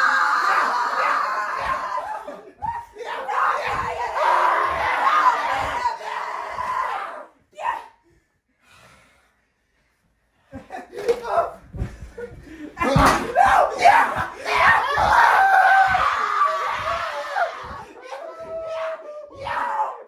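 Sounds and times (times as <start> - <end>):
people screaming and laughing: 0.0 - 7.2, 12.2 - 20.0
thuds of bodies hitting floor: 1.6 - 7.0, 11.3 - 18.7.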